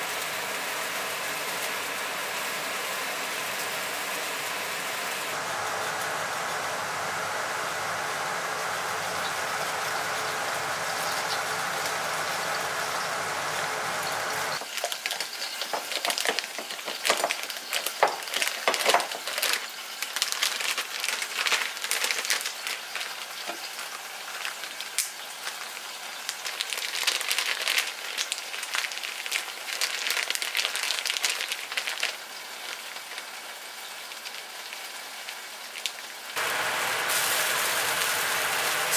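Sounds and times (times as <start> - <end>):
steady hiss: 0.0 - 14.7, 36.3 - 38.9
plastic bag crinkling: 14.6 - 33.4.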